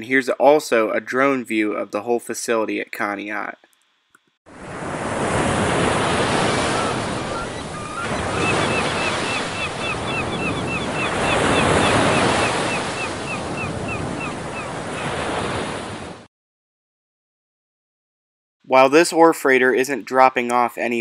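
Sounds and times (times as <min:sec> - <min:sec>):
small bird chirping: 0:07.2 - 0:14.4.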